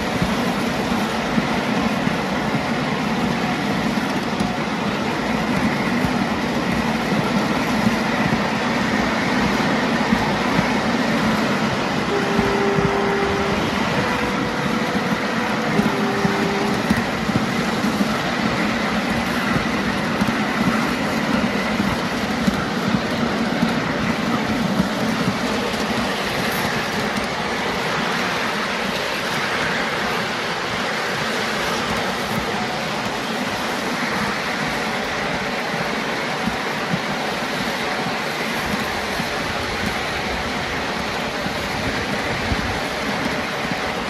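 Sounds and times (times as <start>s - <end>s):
wheels rumbling on rail: 0.0s - 44.0s.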